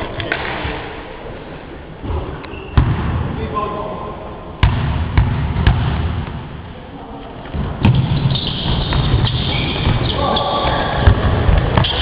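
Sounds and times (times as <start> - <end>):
hubbub of the hall: 0.0 - 12.0
basketball bouncing on floor: 4.6 - 6.4, 7.6 - 12.0
high squeaks: 8.1 - 11.0.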